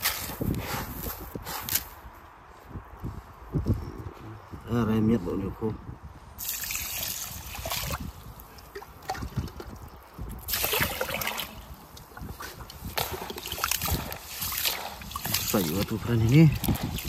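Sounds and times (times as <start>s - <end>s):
water sloshing and trickling: 6.4s - 17.0s.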